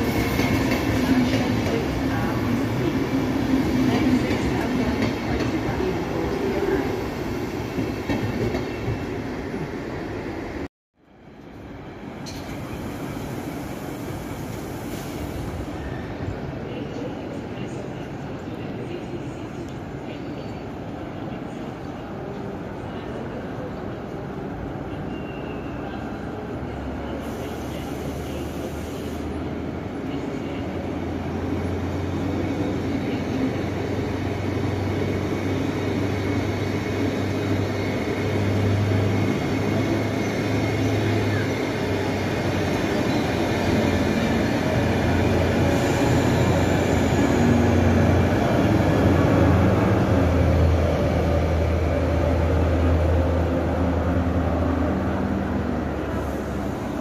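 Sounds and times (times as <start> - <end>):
train wheels rumbling on rails: 0.0 - 9.7, 30.3 - 57.0.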